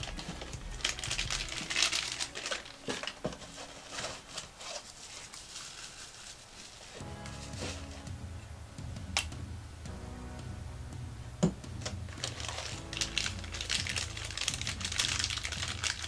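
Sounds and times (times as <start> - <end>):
plastic bags crinkling: 0.0 - 8.0, 12.1 - 16.0.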